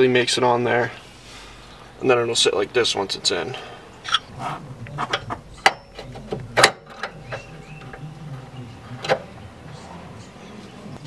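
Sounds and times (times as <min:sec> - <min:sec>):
sharp metal clicks and knocks: 0:05.0 - 0:08.0.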